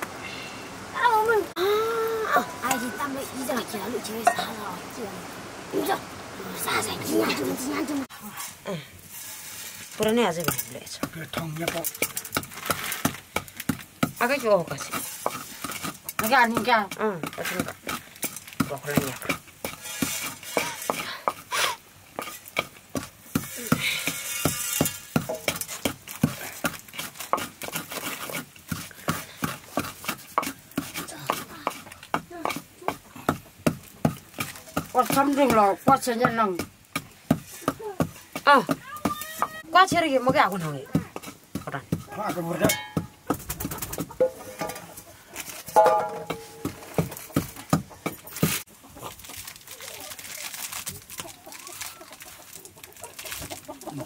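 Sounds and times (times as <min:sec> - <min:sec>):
stone pounder knocking in mortar: 0:29.1 - 0:44.8, 0:45.8 - 0:48.6
sharp knocks: 0:45.8 - 0:47.9.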